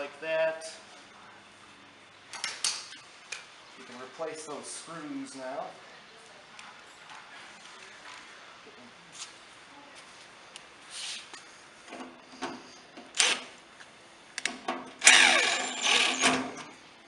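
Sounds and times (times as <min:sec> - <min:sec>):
cordless driver running screws: 0:13.2 - 0:13.5, 0:15.0 - 0:16.6.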